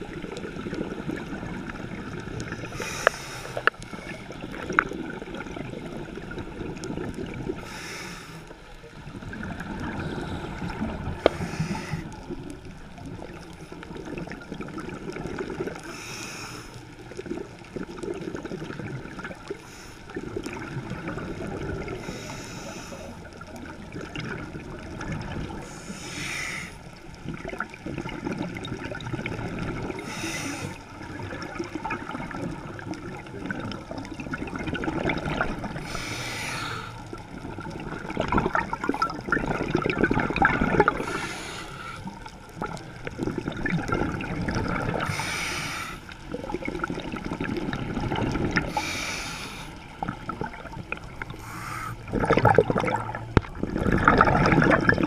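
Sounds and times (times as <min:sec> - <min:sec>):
bubbles rumbling underwater: 0:00.0 - 0:07.8, 0:08.5 - 0:16.1, 0:16.7 - 0:55.0
regulator inhale hiss: 0:02.6 - 0:04.3, 0:07.6 - 0:08.6, 0:10.0 - 0:12.3, 0:15.8 - 0:16.8, 0:22.0 - 0:23.3, 0:25.6 - 0:26.9, 0:30.0 - 0:30.9, 0:35.8 - 0:37.1, 0:41.0 - 0:42.2, 0:45.0 - 0:46.2, 0:48.7 - 0:50.0, 0:51.2 - 0:52.1.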